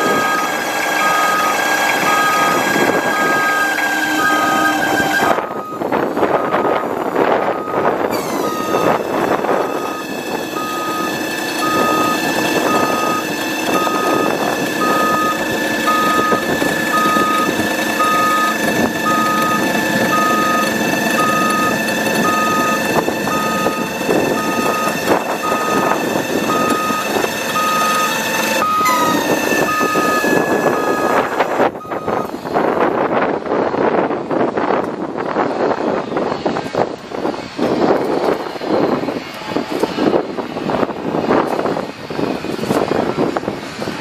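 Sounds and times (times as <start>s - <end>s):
truck warning beeper: 0.0s - 32.4s
truck machinery whine: 0.0s - 44.0s.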